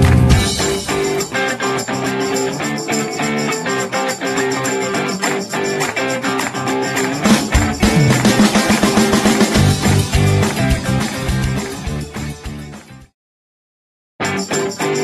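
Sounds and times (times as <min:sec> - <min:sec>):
instrumental guitar music: 0:00.0 - 0:12.8, 0:14.2 - 0:15.0.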